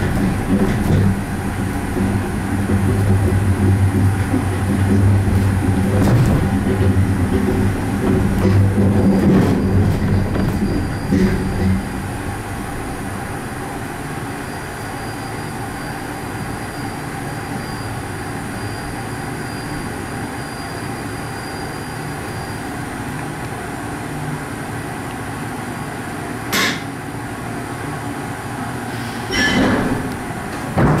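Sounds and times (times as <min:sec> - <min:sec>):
monorail car humming: 0:00.0 - 0:31.0
short squeal: 0:10.4 - 0:11.5, 0:14.4 - 0:22.7.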